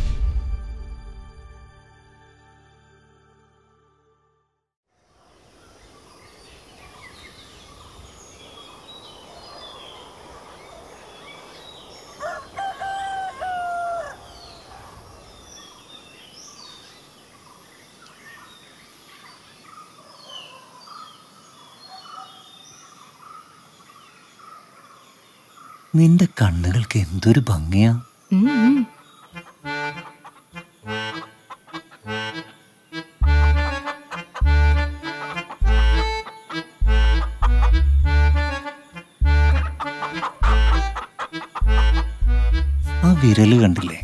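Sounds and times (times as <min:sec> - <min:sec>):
small birds chirping: 0:05.3 - 0:44.0
rooster crowing: 0:12.1 - 0:14.9.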